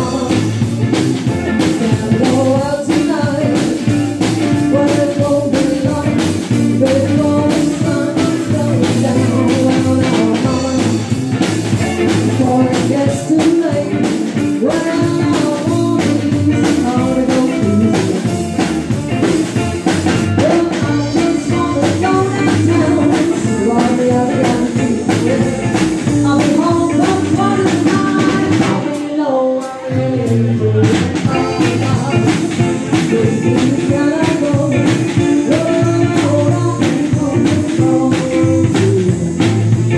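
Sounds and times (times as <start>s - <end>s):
woman singing: 0.0s - 0.7s, 1.4s - 11.2s, 11.8s - 18.4s, 20.3s - 39.6s
drum kit beat: 0.0s - 39.9s
electric guitar: 0.0s - 39.9s
saxophone: 31.3s - 32.8s.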